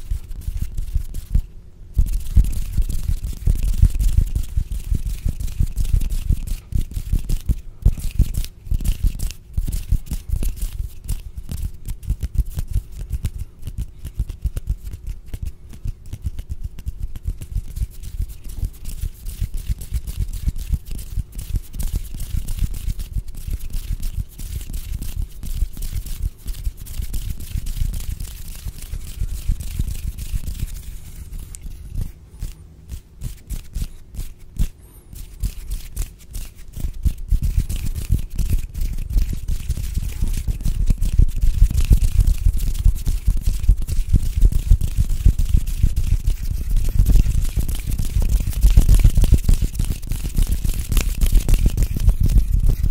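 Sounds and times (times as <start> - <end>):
hands rubbing on microphone: 0.0 - 52.9.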